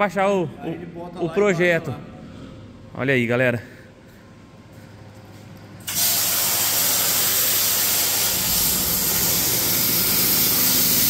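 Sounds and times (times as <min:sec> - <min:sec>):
plasma jet hissing: 0:05.8 - 0:11.0.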